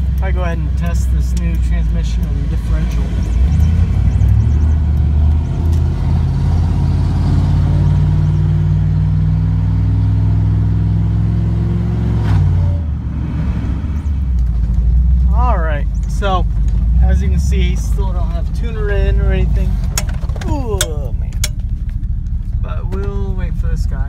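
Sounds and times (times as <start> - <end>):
truck engine accelerating: 0.0 - 24.0.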